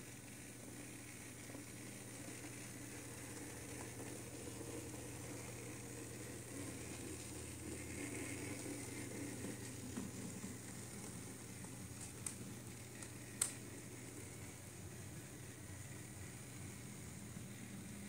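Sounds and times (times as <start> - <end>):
model train motor hum: 0.0 - 18.0
sharp clicks: 13.0 - 13.6.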